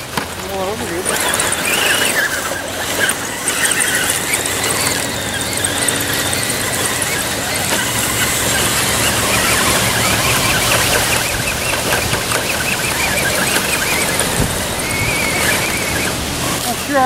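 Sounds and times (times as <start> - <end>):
toy car motor whining: 0.0 - 17.0
wind noise on microphone: 3.3 - 16.9.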